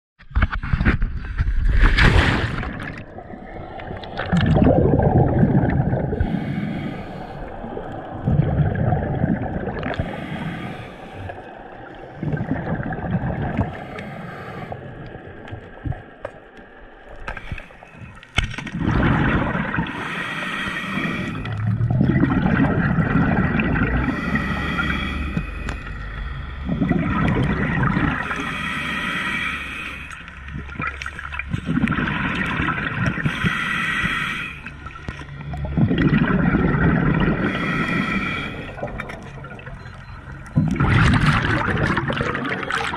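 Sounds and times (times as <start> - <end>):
exhaled bubbles gurgling underwater: 1.2 - 42.9
regulator inhalation hiss: 20.0 - 21.5, 28.3 - 30.2, 33.2 - 34.8, 37.4 - 38.7.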